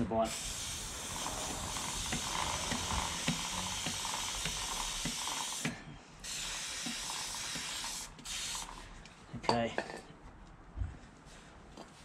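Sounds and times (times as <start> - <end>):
aerosol spray hissing: 0.3 - 8.8.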